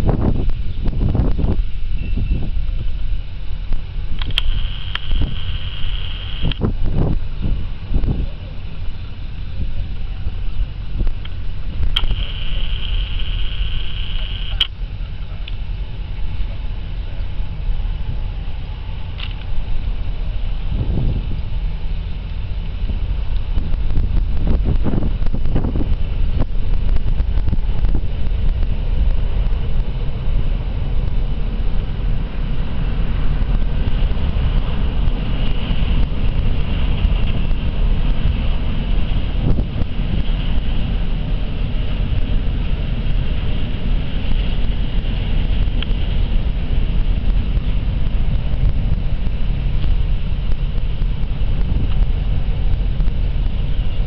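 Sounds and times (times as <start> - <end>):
faint ferry engine hum: 0.0 - 54.0
wind rumble on microphone: 0.0 - 54.0
camcorder zoom motor whining: 4.2 - 6.6, 12.0 - 14.7
zoom motor click: 4.2 - 6.6, 12.0 - 14.7.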